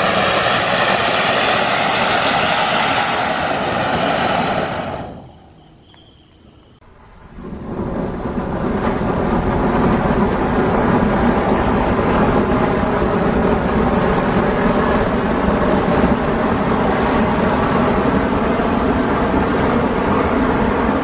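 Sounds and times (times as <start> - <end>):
firework fountain hissing: 0.0 - 6.8.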